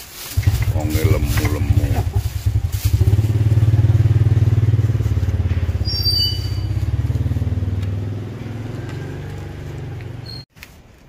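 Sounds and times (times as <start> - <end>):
small engine idling: 0.1 - 10.4
brief high-pitched squeak: 5.8 - 6.7, 10.2 - 10.5.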